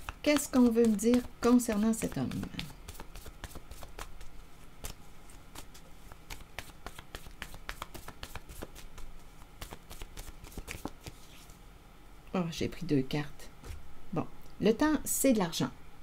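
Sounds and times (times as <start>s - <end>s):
cards being shuffled: 0.0s - 11.6s.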